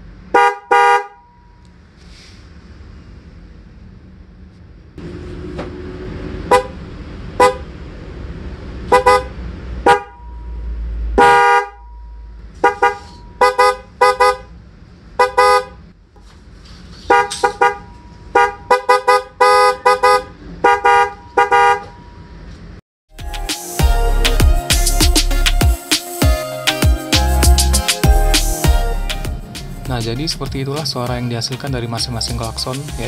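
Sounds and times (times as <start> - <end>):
low rumble: 3.4 - 8.8.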